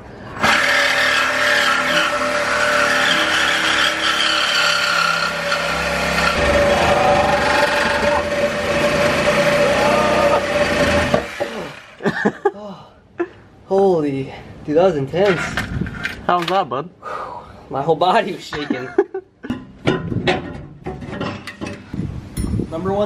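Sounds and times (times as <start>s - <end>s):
saw blade rasping on metal: 0.4s - 9.7s
reciprocating saw motor whine: 0.4s - 12.0s.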